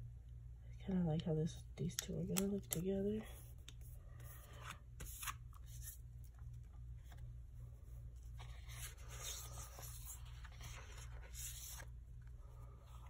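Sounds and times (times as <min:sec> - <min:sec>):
steady low hum: 0:00.0 - 0:13.0
paper rustling and rubbing: 0:03.3 - 0:06.0, 0:06.9 - 0:12.0.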